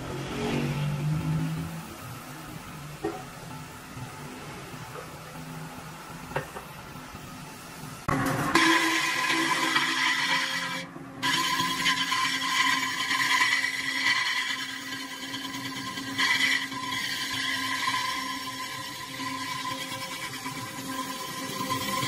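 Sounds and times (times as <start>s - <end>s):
metallic ringing whine with scraping: 8.0s - 22.0s.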